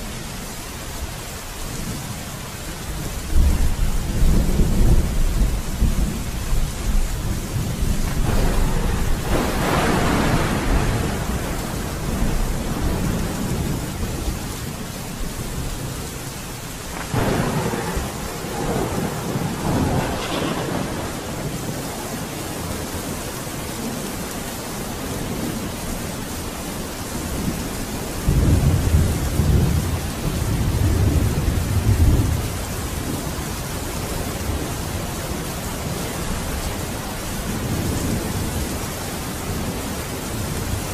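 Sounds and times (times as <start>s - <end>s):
steady rain: 0.0s - 40.9s
thunder rolling: 3.3s - 22.9s.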